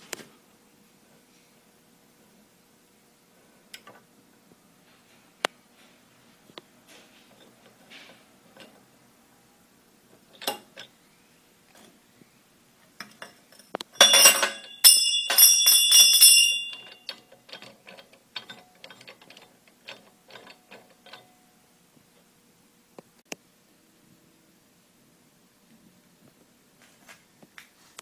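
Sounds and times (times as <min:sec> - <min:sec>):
metal tube knocking and ringing: 0:14.0 - 0:17.1.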